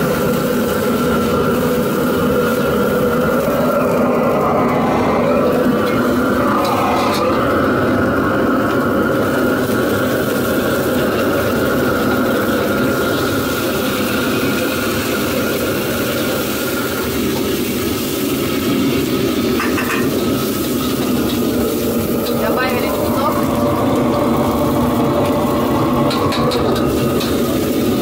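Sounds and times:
gas burner roaring: 0.0s - 28.0s.

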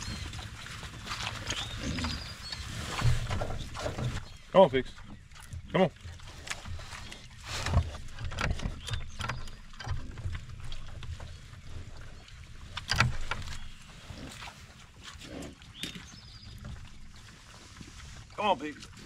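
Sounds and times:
pigs snuffling and chewing: 0.0s - 19.0s
pigs grunting: 1.2s - 5.0s, 13.8s - 15.7s.

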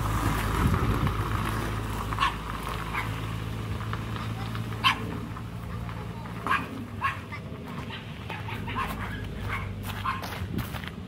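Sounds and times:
dog barking: 2.2s - 3.2s, 4.8s - 5.1s, 6.4s - 10.3s.

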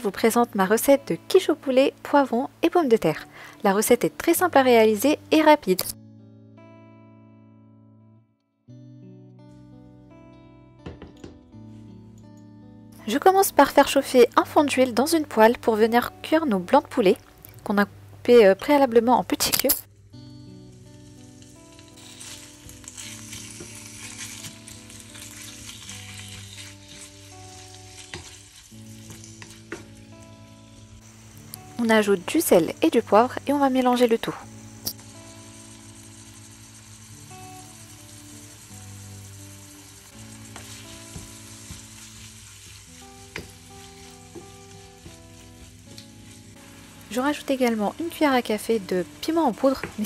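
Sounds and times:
chicken sizzling in hot oil: 20.6s - 50.0s
utensil tapping on pan: 43.3s - 43.6s.

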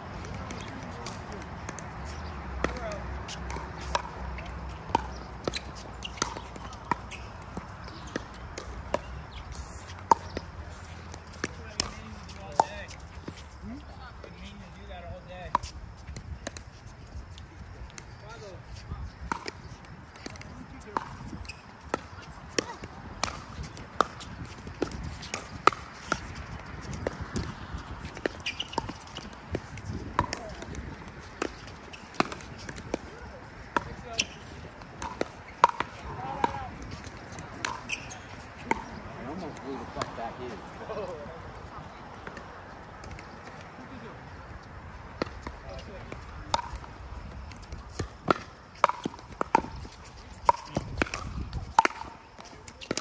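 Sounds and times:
paddles hitting plastic ball: 0.1s - 13.0s, 19.2s - 41.0s, 45.2s - 53.0s
paddles striking ball pops: 47.5s - 49.7s.

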